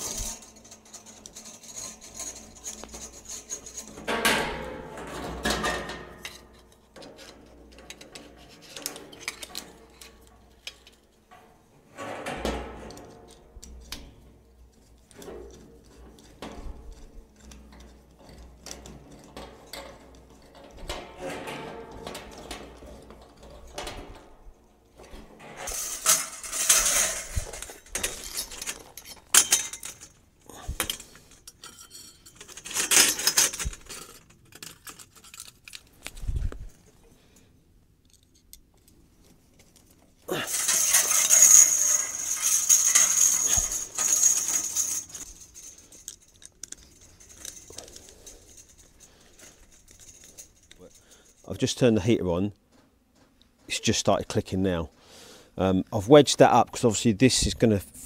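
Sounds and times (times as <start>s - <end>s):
metal clinks and rattles: 0.0s - 4.5s, 12.2s - 24.3s, 25.0s - 36.6s, 39.5s - 51.8s
corrugated pipe scraping rattle: 0.0s - 36.4s, 40.3s - 57.5s.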